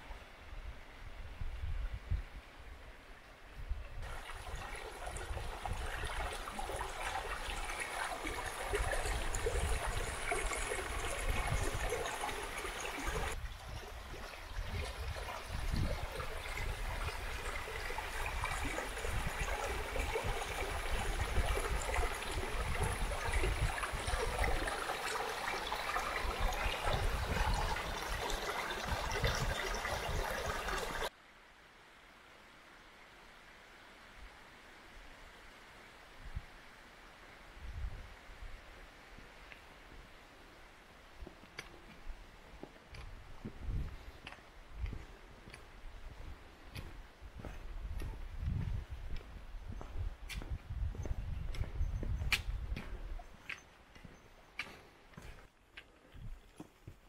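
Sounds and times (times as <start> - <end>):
stream trickling over rocks: 4.0 - 31.2.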